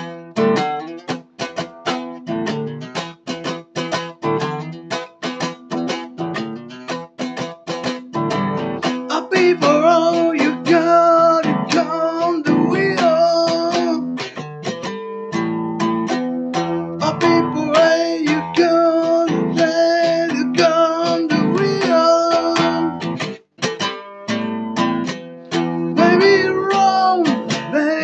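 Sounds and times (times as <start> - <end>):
acoustic guitar strumming: 0.0 - 28.0
man singing: 8.8 - 14.4, 16.6 - 23.3, 25.6 - 28.0.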